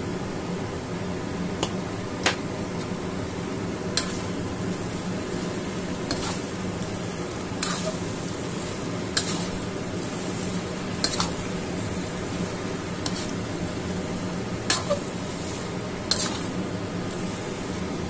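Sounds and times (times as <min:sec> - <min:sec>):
vegetables sizzling: 0:02.1 - 0:18.0
spatula knocking and scraping wok: 0:03.9 - 0:13.6, 0:14.6 - 0:17.2.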